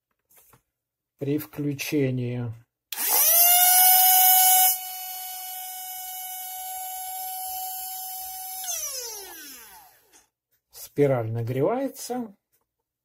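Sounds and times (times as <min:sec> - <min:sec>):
hair dryer motor whining: 0:03.0 - 0:10.2.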